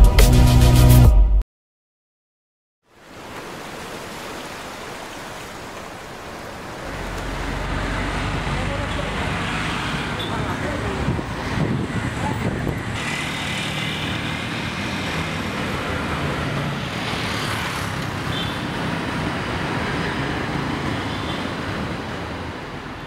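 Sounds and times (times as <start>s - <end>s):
street traffic: 5.4s - 23.0s
vehicle engines running: 6.7s - 18.1s.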